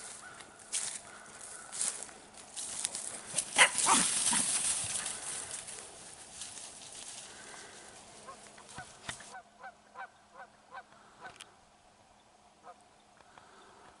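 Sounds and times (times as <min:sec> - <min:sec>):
goose honking: 0:07.4 - 0:11.4.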